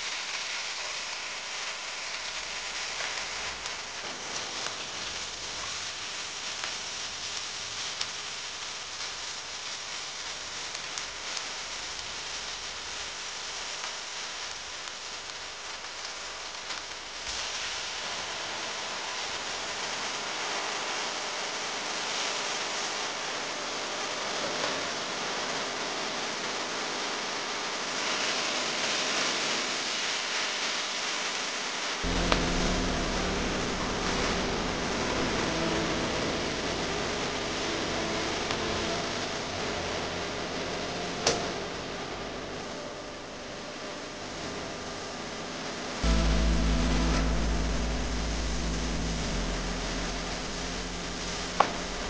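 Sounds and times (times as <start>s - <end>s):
low steady hum: 32.0s - 38.2s, 46.0s - 52.0s.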